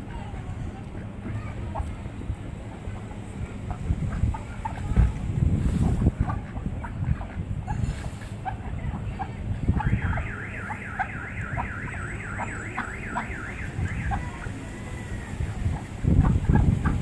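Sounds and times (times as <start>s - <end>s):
low wind rumble: 0.0s - 17.0s
warbling alarm tone: 9.8s - 14.4s.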